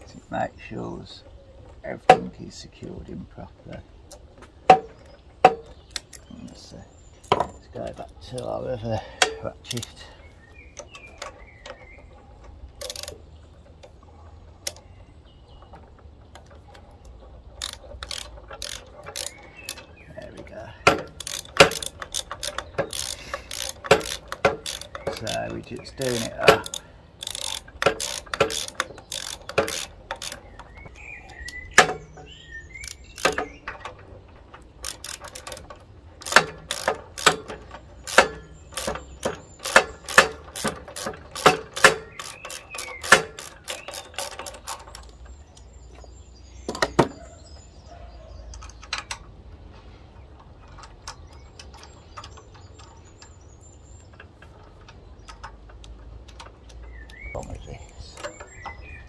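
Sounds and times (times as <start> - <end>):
ratchet wrench clicking: 12.8 - 13.2, 17.6 - 19.9, 20.8 - 33.6, 34.7 - 45.2.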